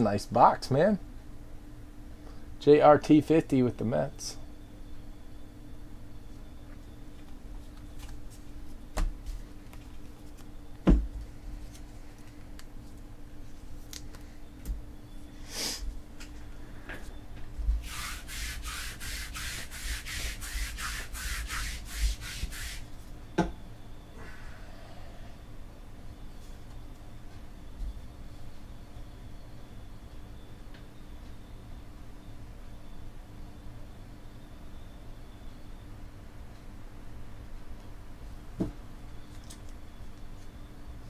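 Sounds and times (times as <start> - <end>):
quick scraping strokes: 17.8 - 22.9.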